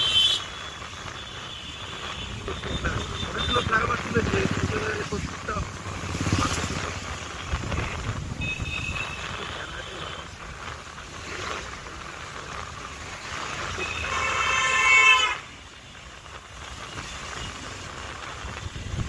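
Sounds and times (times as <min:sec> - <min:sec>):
road traffic rumble: 0:00.0 - 0:19.0
vehicle horn honking: 0:01.2 - 0:03.8, 0:13.8 - 0:15.4.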